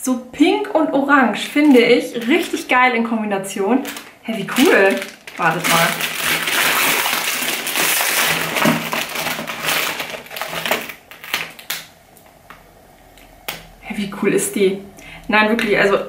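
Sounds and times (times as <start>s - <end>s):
packaging crinkling and rustling: 1.4s - 2.7s, 3.7s - 12.4s.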